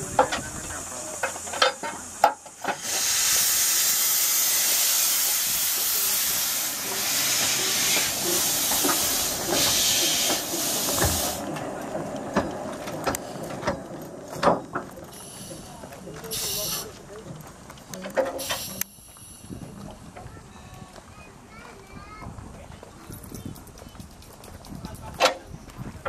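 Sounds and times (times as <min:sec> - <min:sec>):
steam locomotive hissing steam: 0:00.0 - 0:11.7, 0:15.0 - 0:17.0, 0:18.2 - 0:20.1.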